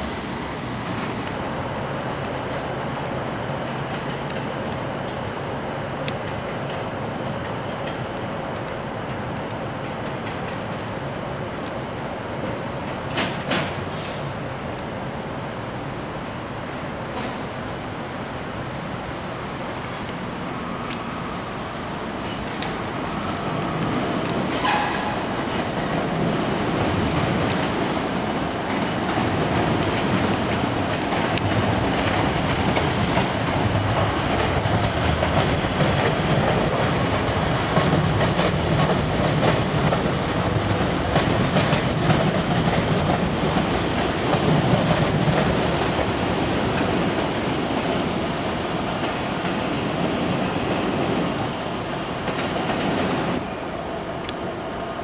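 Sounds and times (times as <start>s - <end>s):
train wheels clattering over rails: 0.0s - 5.2s, 6.0s - 14.4s, 19.6s - 53.5s
high wheel squeal: 20.1s - 25.9s.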